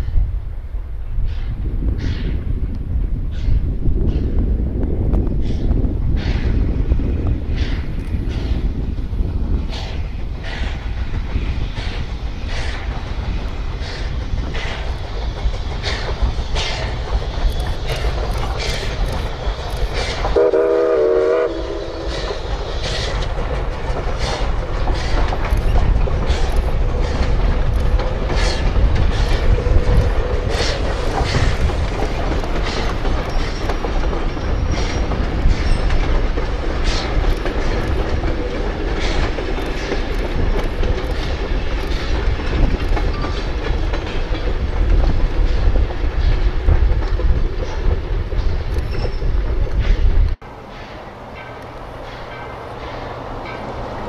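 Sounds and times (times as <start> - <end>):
train rumbling: 0.0 - 54.0
wheels clanking on rails: 1.2 - 54.0
train horn blast: 20.4 - 22.3.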